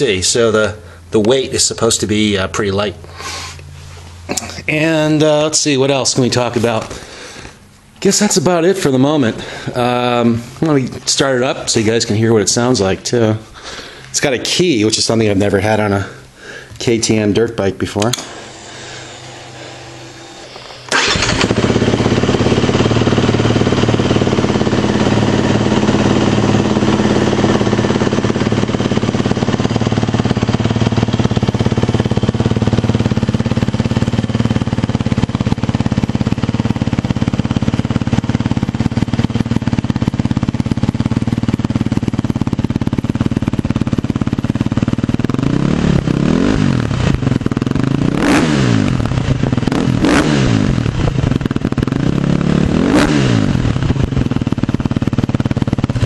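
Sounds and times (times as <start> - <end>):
motorcycle engine idling and revving: 18.0 - 56.0.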